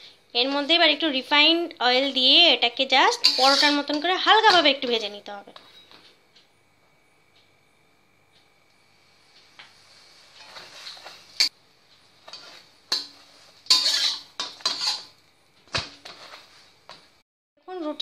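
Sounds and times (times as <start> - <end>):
faint oil sizzle: 2.4 - 5.2, 8.6 - 17.2
metal spatula scraping a griddle: 3.2 - 4.0, 10.3 - 11.5, 12.2 - 15.2.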